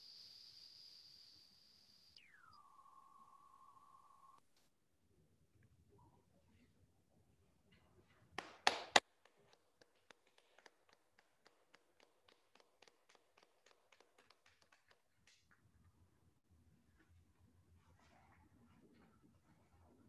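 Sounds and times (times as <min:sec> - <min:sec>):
sharp taps: 0:08.6 - 0:15.6.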